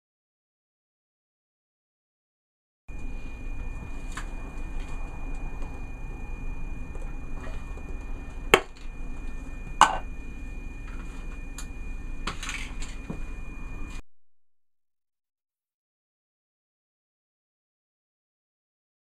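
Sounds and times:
low hum: 2.9s - 14.1s
thin high whine: 2.9s - 14.1s.

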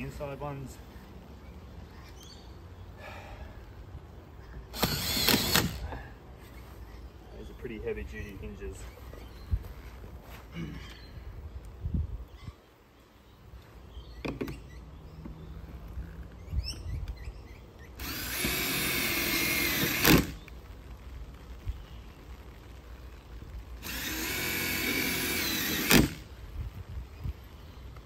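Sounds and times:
cordless drill driving screws: 4.7s - 5.8s, 18.0s - 20.4s, 23.8s - 26.3s.

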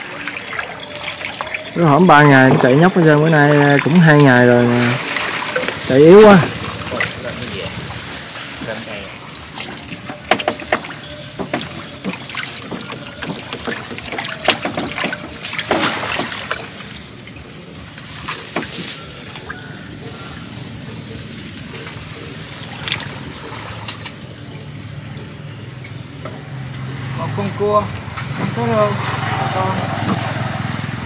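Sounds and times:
water splashing and sloshing: 0.0s - 27.2s, 27.8s - 31.0s
sharp knocks and rattles: 9.5s - 16.7s.

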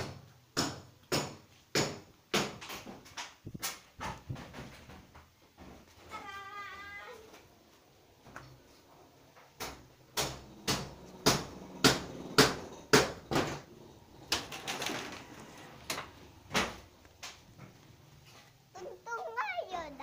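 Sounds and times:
sharp knocks: 0.0s - 5.1s, 9.6s - 13.7s.

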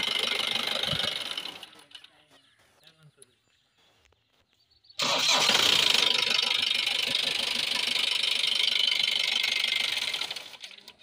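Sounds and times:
starter motor cranking: 0.0s - 1.8s, 5.0s - 11.0s
diesel engine running: 0.0s - 2.4s, 5.0s - 11.0s.

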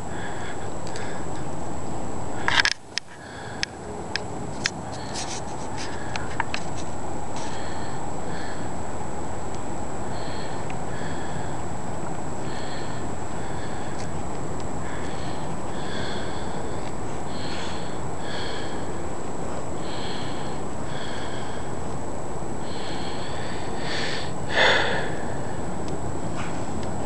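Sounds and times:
background hiss: 0.0s - 27.0s.

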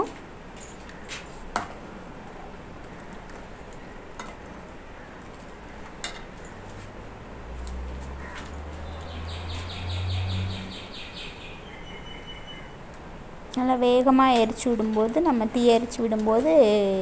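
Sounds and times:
small bird twittering: 8.8s - 12.8s.

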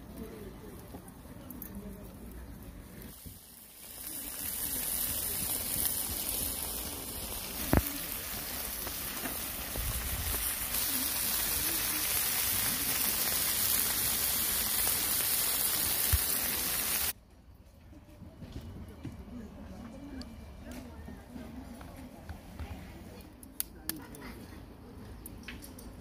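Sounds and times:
food sizzling on a grill: 3.0s - 17.2s.

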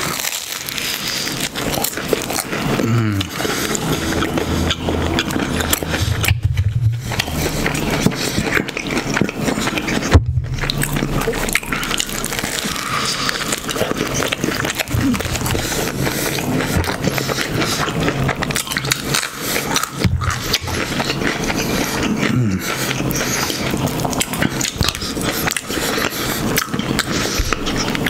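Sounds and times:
close chewing with mouth clicks: 0.0s - 28.0s
short low falling hum: 4.5s - 8.0s, 10.1s - 13.8s.

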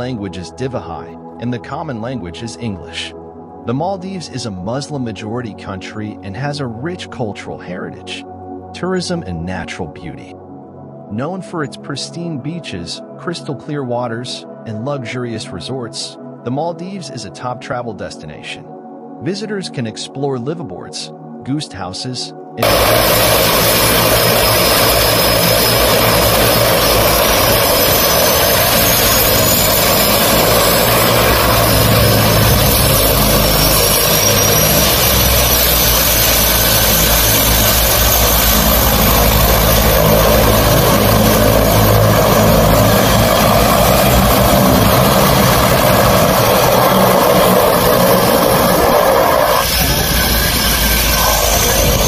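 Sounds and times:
high turbine whine: 22.6s - 52.0s
propeller and engine noise: 22.6s - 52.0s.

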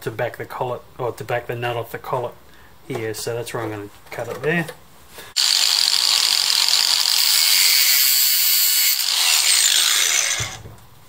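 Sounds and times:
angle grinder cutting metal: 5.4s - 10.6s.

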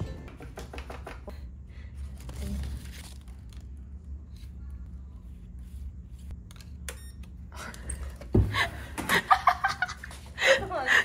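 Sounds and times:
laughter: 0.4s - 1.4s, 8.6s - 11.0s.

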